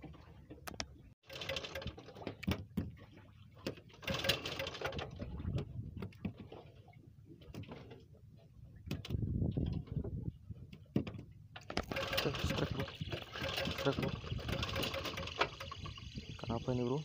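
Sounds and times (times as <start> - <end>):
fishing reel clicks and rattles: 1.3 - 2.2, 4.0 - 5.2, 11.8 - 16.5.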